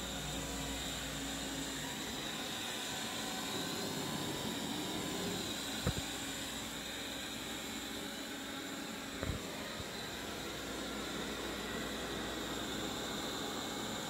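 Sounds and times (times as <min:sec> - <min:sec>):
robot vacuum whirring: 0:01.4 - 0:06.7, 0:09.1 - 0:11.2.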